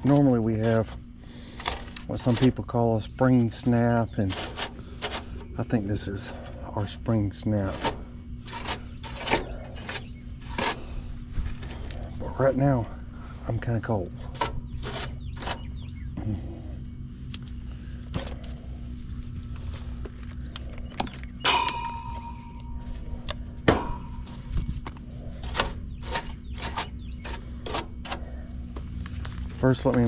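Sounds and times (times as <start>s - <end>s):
steady low hum: 0.0s - 30.0s
metallic clang: 21.4s - 23.0s, 23.7s - 24.4s.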